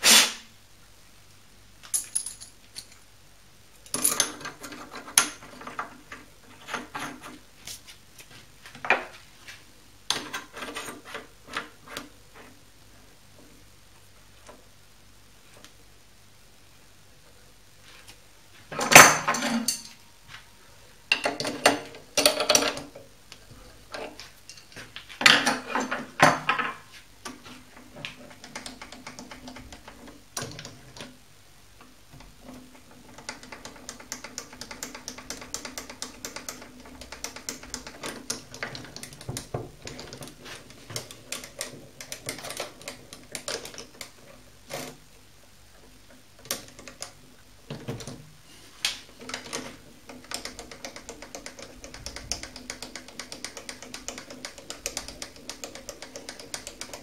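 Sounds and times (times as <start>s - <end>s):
faint steady hum: 0.0s - 57.0s.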